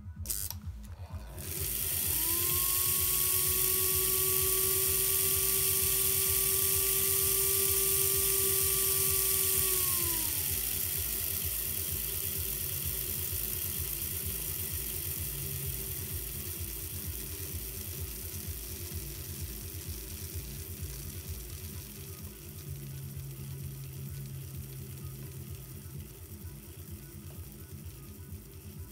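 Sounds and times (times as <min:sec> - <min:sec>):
low rhythmic buzz: 0:00.0 - 0:28.9
model locomotive motor whining: 0:00.0 - 0:28.9.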